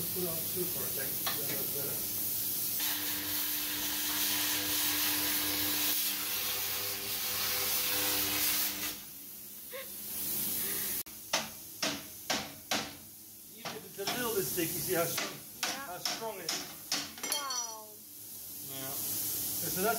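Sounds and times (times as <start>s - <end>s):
cutting torch hissing: 0.0s - 11.1s, 13.4s - 16.6s, 18.3s - 19.9s.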